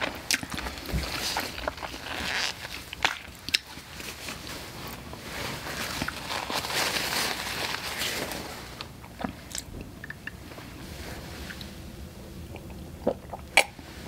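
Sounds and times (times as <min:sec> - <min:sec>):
wet mouth sounds: 0:09.0 - 0:10.5, 0:12.4 - 0:13.8.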